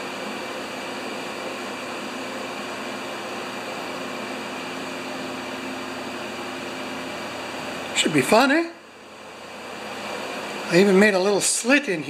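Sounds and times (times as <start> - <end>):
fan running: 0.0 - 12.0.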